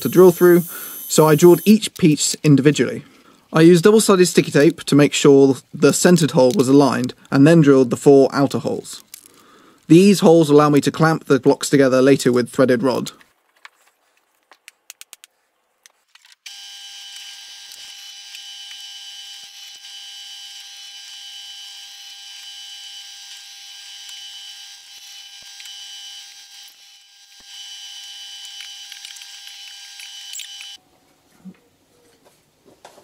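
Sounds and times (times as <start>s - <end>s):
drill motor whining: 0.0s - 1.8s, 16.5s - 30.8s.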